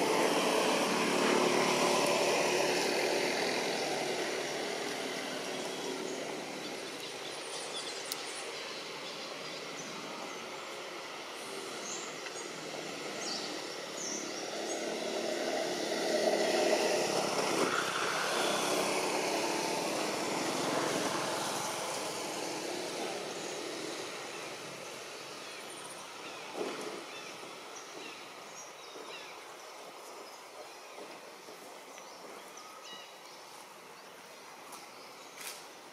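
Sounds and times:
motor engine passing by: 0.0s - 7.8s, 8.7s - 28.2s.

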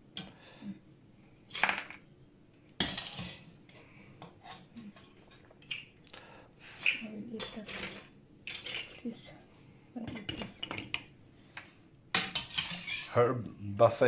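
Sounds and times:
metal spoon clinking on a pan: 7.4s - 8.9s.

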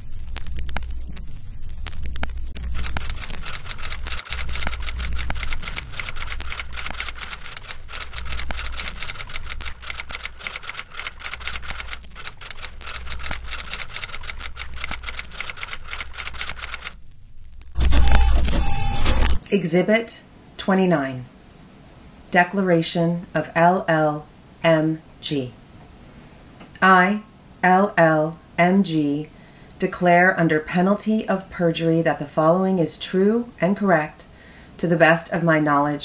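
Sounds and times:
low pulsing rumble: 0.0s - 10.4s
rapid irregular clicking: 0.0s - 17.8s.

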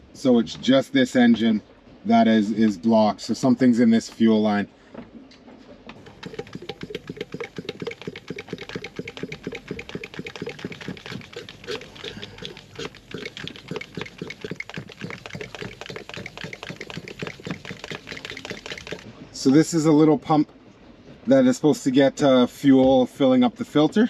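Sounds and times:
hand fuel pump clicking: 6.0s - 19.1s.

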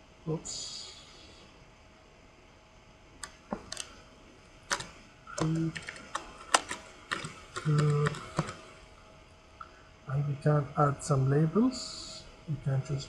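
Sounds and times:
computer keyboard keys clicking: 3.2s - 3.9s, 4.7s - 8.6s.

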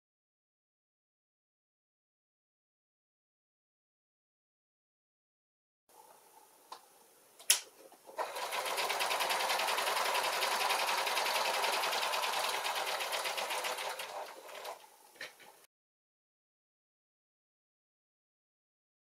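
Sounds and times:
sewing machine stitching: 8.1s - 14.9s.

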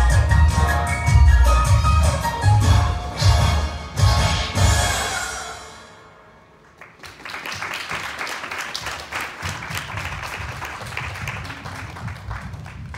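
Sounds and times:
music: 0.0s - 6.5s
audience clapping: 6.6s - 12.9s.

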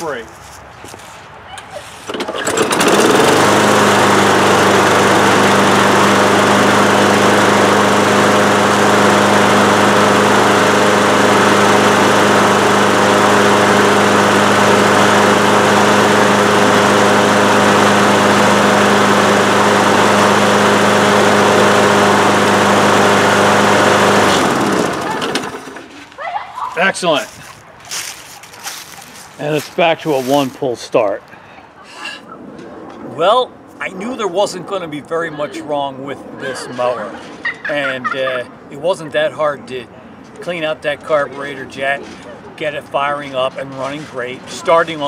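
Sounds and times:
lawn mower engine pull-started: 2.0s - 26.0s, 40.4s - 45.0s
lawn mower engine running: 2.0s - 26.0s.

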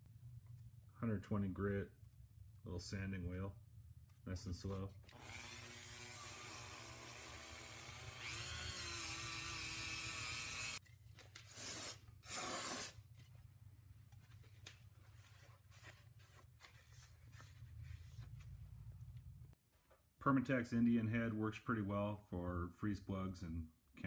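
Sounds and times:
faint handling sounds: 10.8s - 11.5s, 13.0s - 20.1s.

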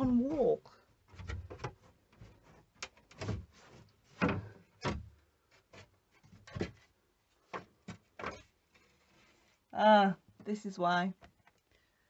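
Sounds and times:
wooden panelling knocking and cracking: 0.0s - 9.0s.

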